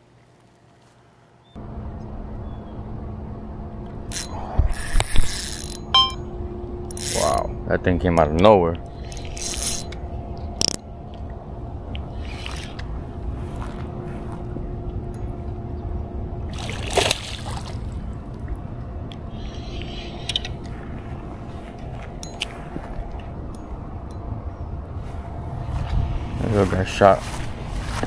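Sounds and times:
low rumble: 1.6 - 28.0
water sloshing at shore: 16.5 - 18.6.

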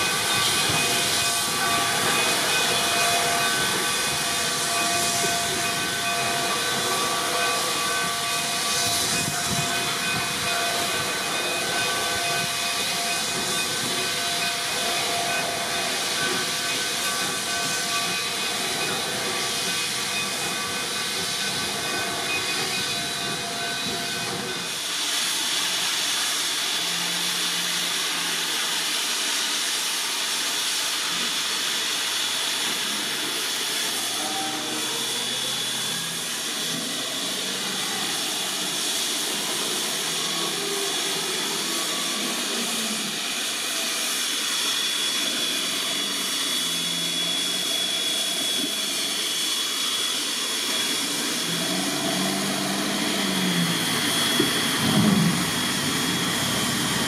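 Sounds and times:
steam locomotive hissing: 0.0 - 57.0.

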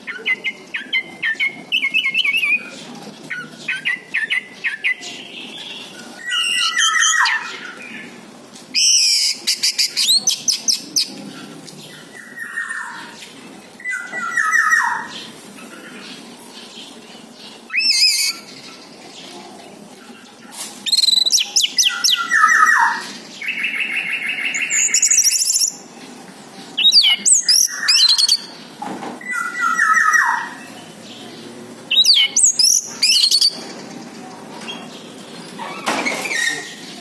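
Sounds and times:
thrush singing whistles and trills: 8.8 - 11.1, 17.7 - 18.6, 20.9 - 25.8, 26.8 - 28.6, 31.9 - 33.6.

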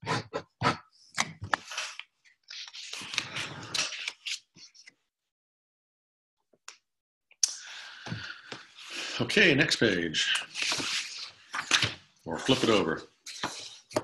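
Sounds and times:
marker pen scratching on paper: 12.4 - 14.0.

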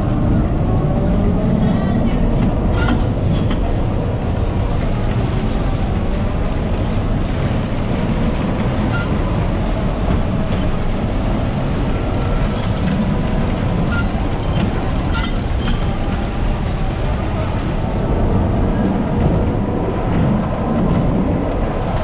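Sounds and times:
bumper car rumbling on metal floor: 2.2 - 22.0.

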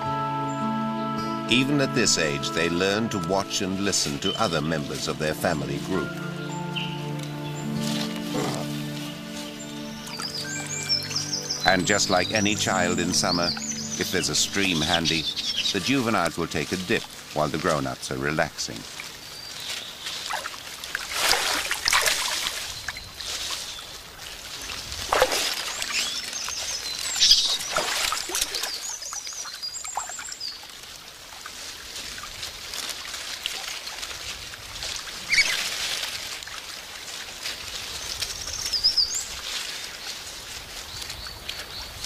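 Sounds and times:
running water hiss: 1.2 - 42.0
water splashing: 1.3 - 42.0
small birds chirping: 4.1 - 20.7, 22.0 - 30.8, 35.2 - 35.8, 37.7 - 42.0.

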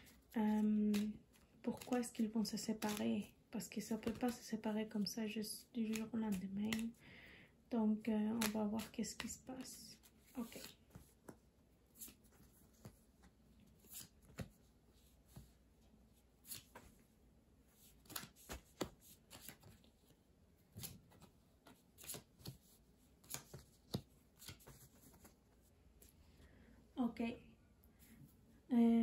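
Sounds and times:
cards tapping and sliding on cloth: 5.8 - 7.0, 8.2 - 15.6, 17.8 - 19.9, 20.7 - 25.4.

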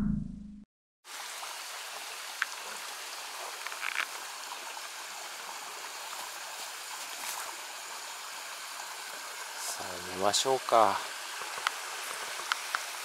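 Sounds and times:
deep sound effect: 0.0 - 0.6
outdoor night ambient hiss: 1.1 - 13.0.

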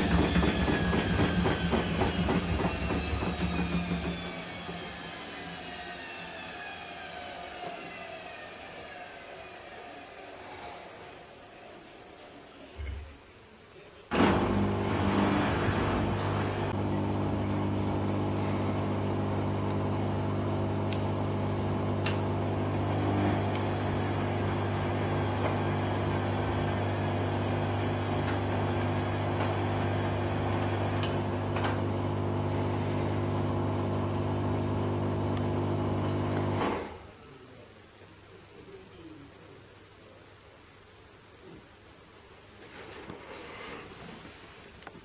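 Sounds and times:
washing machine motor hum: 0.0 - 7.4, 14.1 - 37.0.

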